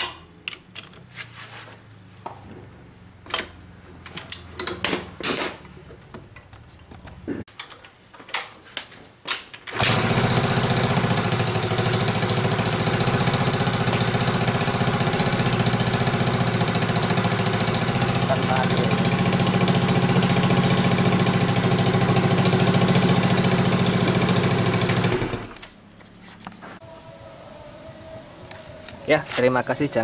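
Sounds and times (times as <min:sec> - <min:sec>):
motorcycle engine starting and running: 0:09.7 - 0:26.1.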